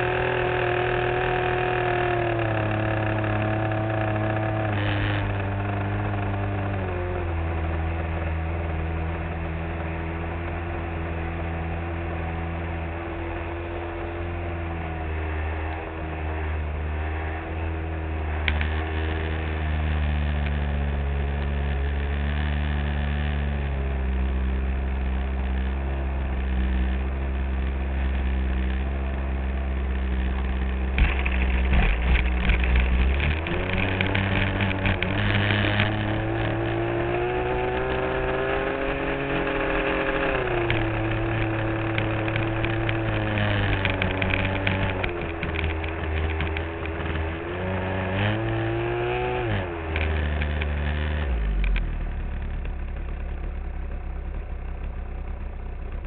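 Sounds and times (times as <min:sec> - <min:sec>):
model airplane engine: 0:00.0 - 0:09.2, 0:09.8 - 0:56.0.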